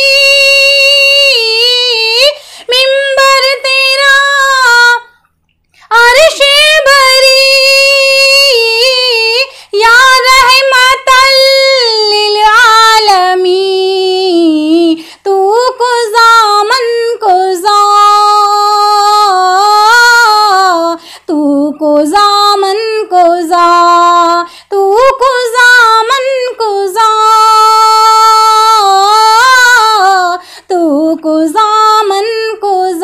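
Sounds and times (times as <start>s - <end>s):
woman singing devotional song: 0.0s - 33.0s
woman breathing: 2.4s - 2.7s, 9.5s - 9.8s, 15.0s - 15.2s, 21.0s - 21.3s, 24.5s - 24.7s, 30.4s - 30.7s.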